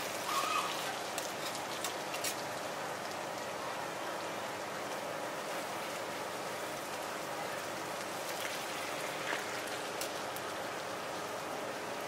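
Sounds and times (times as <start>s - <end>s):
potato cakes sizzling on griddle: 0.0s - 12.0s.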